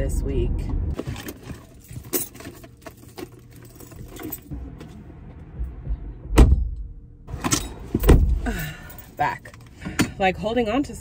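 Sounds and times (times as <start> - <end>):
car door thump shutting: 5.8 - 6.8, 7.4 - 8.4.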